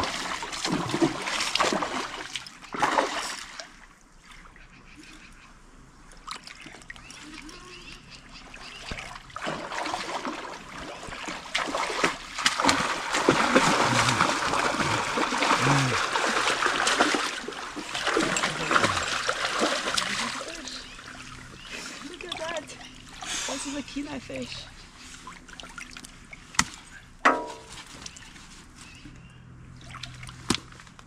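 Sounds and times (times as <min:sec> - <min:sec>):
fish splashing in water: 0:00.0 - 0:03.8, 0:08.7 - 0:23.7.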